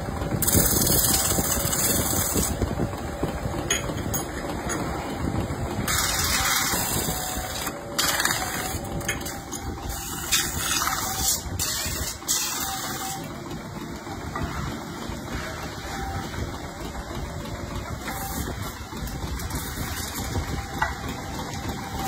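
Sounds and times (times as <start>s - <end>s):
lathe running with rumble: 0.0s - 22.0s.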